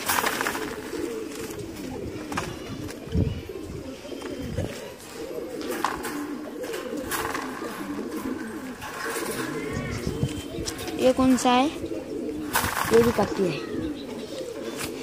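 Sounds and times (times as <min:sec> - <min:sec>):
pigeons cooing: 0:00.0 - 0:15.0.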